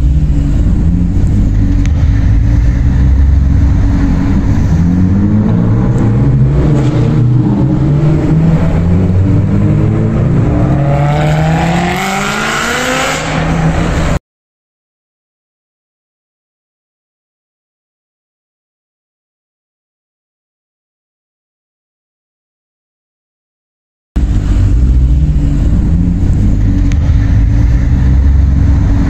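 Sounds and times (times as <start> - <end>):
car engine rumbling and revving: 0.0 - 14.2, 24.2 - 29.0.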